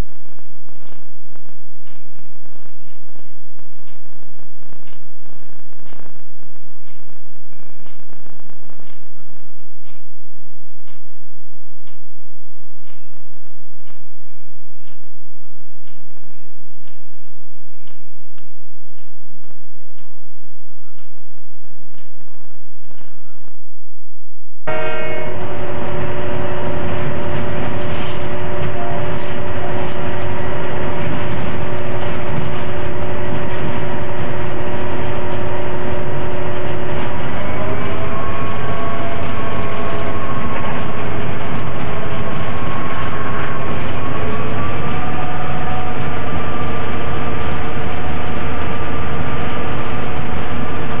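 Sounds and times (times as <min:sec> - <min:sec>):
diesel locomotive engine running: 0:24.7 - 0:51.0
train rumbling: 0:24.7 - 0:51.0.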